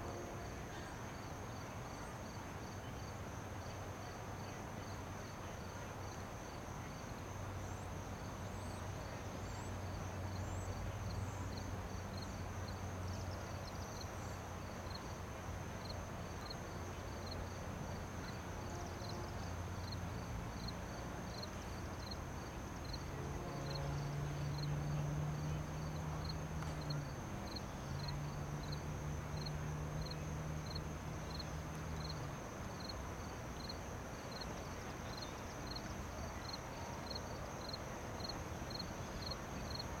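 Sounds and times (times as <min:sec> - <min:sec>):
insect chirps: 0:01.2 - 0:40.0
diesel locomotives droning: 0:22.8 - 0:30.5.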